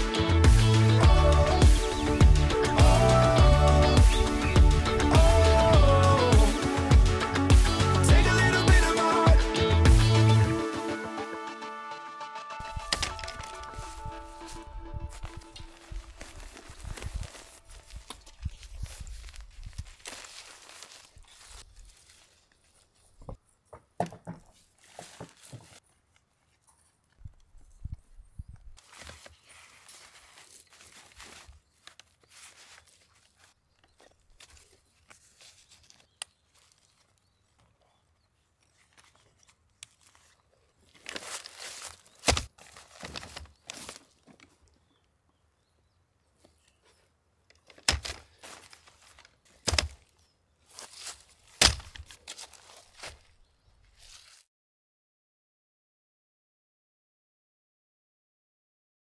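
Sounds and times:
footsteps crunching dry leaves: 12.6 - 23.0, 24.6 - 25.9, 28.8 - 37.6, 38.7 - 44.3, 47.8 - 54.5
chair set down on leaves: 12.8 - 14.0, 24.0 - 25.8, 41.0 - 44.4, 47.7 - 50.1
nylon quilt rustling: 13.1 - 22.8, 28.8 - 33.6, 38.7 - 44.1
sharp knocks and crunches: 23.2 - 25.8, 40.9 - 44.5, 47.6 - 50.1, 50.7 - 53.3.

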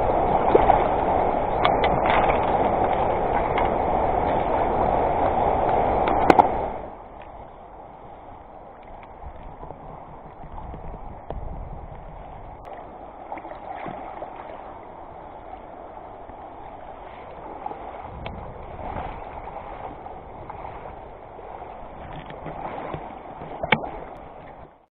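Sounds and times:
river water rushing over stones: 0.0 - 11.6
faint splashes: 0.0 - 24.8.

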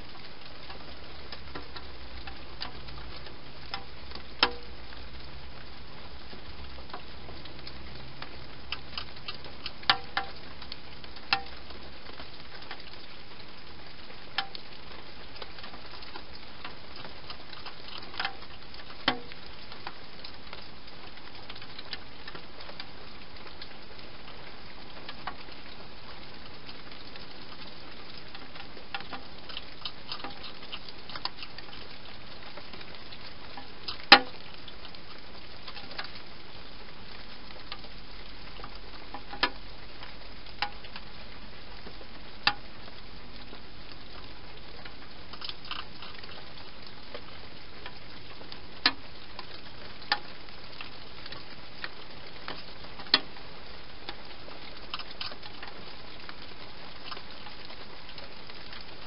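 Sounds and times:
hedgehog crunching dry food: 29.0 - 32.0, 45.3 - 46.4.

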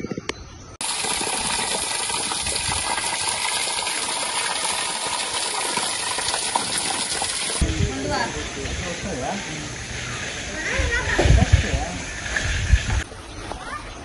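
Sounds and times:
water splashing onto stones: 0.8 - 10.5.

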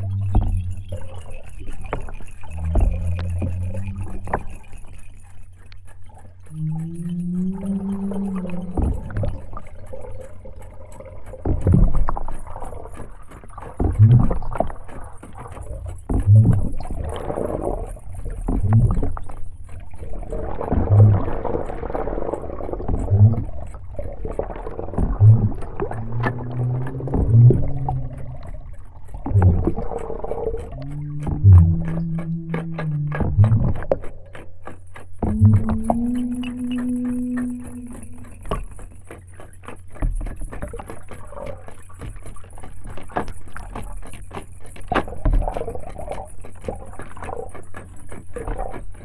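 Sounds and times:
low underwater thump: 0.0 - 1.1, 2.5 - 4.5, 25.0 - 28.6, 29.2 - 29.9, 30.7 - 34.1, 35.2 - 38.8
low gliding tone: 0.0 - 5.8, 6.4 - 11.0, 25.0 - 34.6, 35.2 - 39.2
water swishing and gurgling: 0.0 - 49.0.

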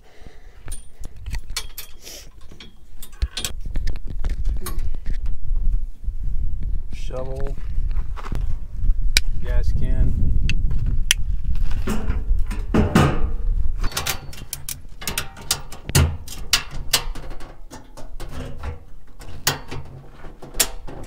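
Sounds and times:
camping gear clattering: 0.6 - 5.3, 11.6 - 21.0.

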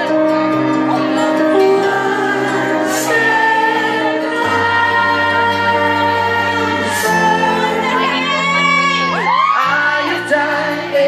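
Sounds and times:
backing music: 0.0 - 11.0
man singing a slow ballad: 1.5 - 8.5, 9.5 - 11.0.

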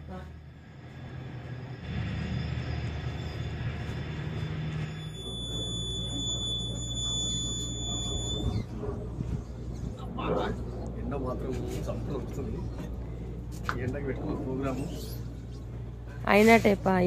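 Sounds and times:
high-pitched whine: 0.0 - 13.4.

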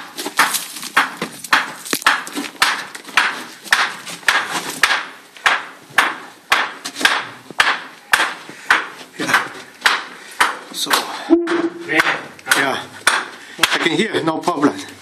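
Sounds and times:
footsteps crunching on gravel: 0.1 - 4.8.

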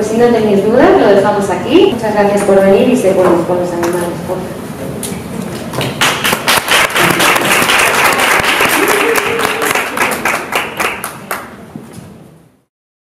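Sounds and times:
audience applauding: 5.8 - 11.6.

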